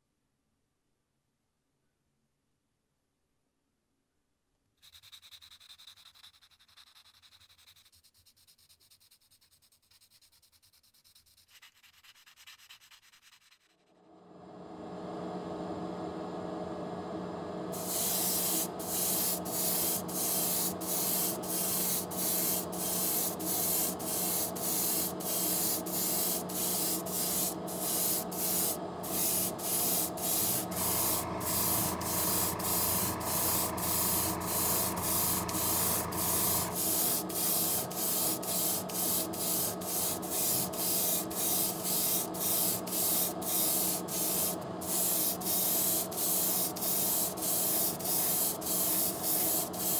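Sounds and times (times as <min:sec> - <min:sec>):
deeper hum: 0:14.0 - 0:20.9, 0:26.4 - 0:38.5
mechanical hum: 0:14.0 - 0:49.9
airbrush spraying hiss: 0:17.7 - 0:49.9.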